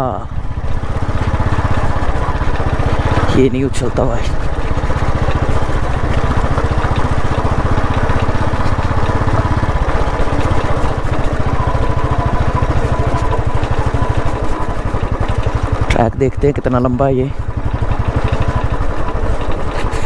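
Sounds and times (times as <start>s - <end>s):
single-cylinder motorcycle engine running: 0.0s - 20.0s.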